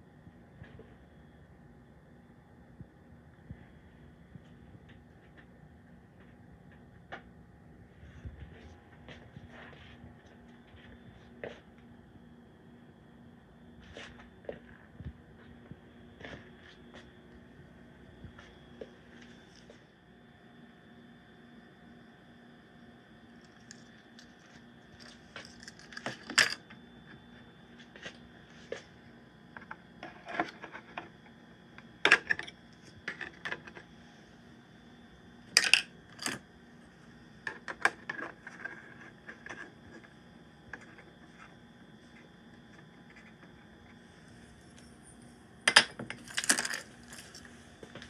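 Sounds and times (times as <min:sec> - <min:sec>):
faint steady hum: 0:00.0 - 0:48.0
plastic toy clicks and knocks: 0:35.6 - 0:36.4.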